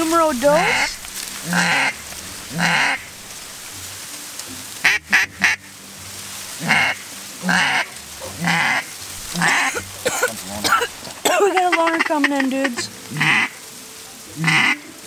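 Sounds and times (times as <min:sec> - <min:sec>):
duck call quacking: 0:00.0 - 0:03.1, 0:04.8 - 0:05.7, 0:06.6 - 0:10.1, 0:11.4 - 0:13.6, 0:14.4 - 0:15.0.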